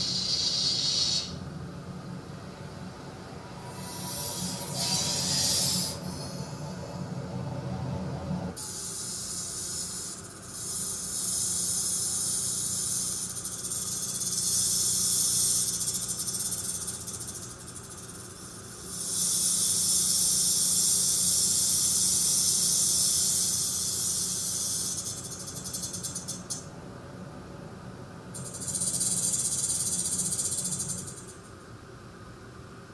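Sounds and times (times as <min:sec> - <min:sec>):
rattlesnake rattling: 0:00.0 - 0:01.4, 0:03.6 - 0:06.4, 0:08.6 - 0:26.7, 0:28.4 - 0:31.6
steady low hum: 0:00.0 - 0:32.9.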